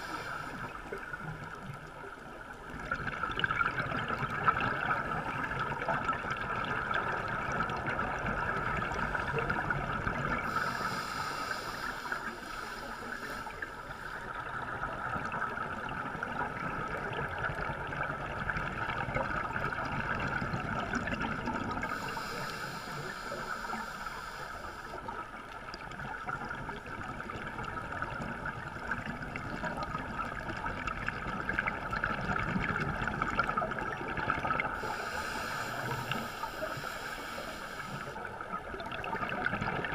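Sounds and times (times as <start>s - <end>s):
underwater crackling hiss: 0.0s - 1.6s, 10.3s - 15.4s, 21.7s - 25.5s, 33.3s - 38.3s.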